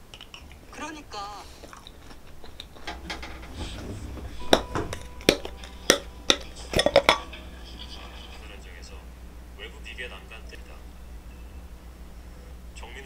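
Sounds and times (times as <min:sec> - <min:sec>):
utensils and dishes clinking: 0:02.2 - 0:08.7.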